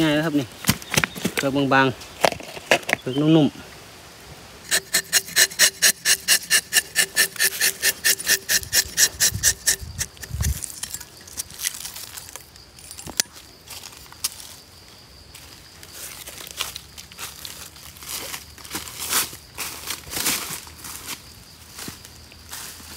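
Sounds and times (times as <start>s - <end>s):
knife rasping scrapes on bark: 4.7s - 12.4s.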